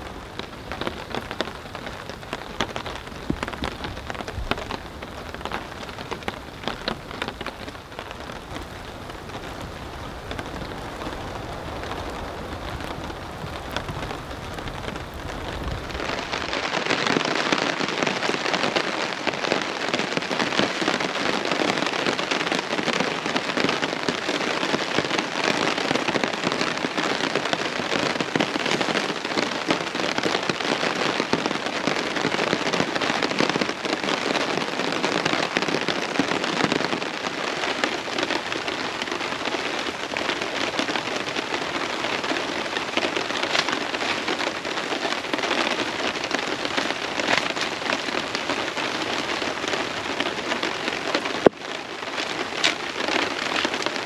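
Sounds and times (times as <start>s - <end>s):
heavy rain on a tarp: 0.0s - 54.0s.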